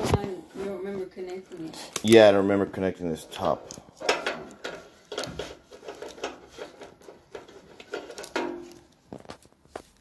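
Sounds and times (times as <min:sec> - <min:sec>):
power cord rustling on metal: 0:02.1 - 0:09.5.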